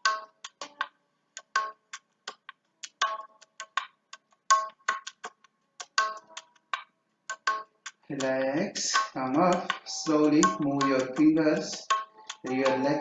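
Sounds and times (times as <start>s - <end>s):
music of quick pitched notes: 7.5s - 13.0s.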